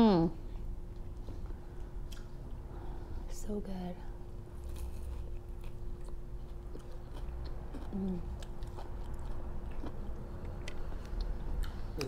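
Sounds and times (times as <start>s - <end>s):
person chewing: 0.9s - 2.6s, 4.5s - 12.0s.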